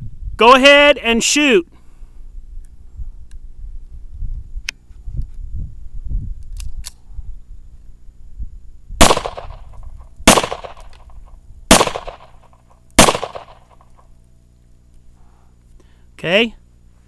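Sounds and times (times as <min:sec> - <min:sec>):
pistol shots: 0:09.0 - 0:11.1, 0:11.7 - 0:14.0.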